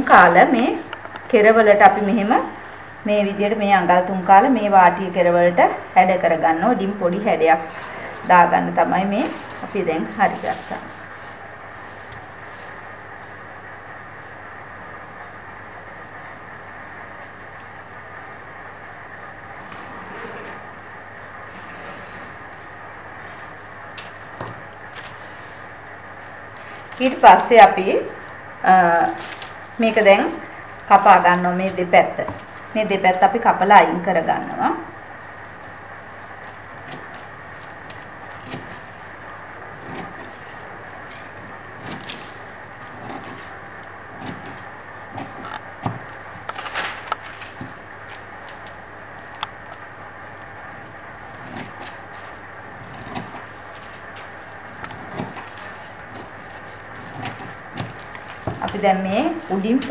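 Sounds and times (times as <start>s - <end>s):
steady hiss: 0.0s - 59.9s
paper rustling and tapping: 24.0s - 25.2s, 29.1s - 29.6s, 30.3s - 33.3s, 36.4s - 43.6s, 44.2s - 49.8s, 50.8s - 59.9s.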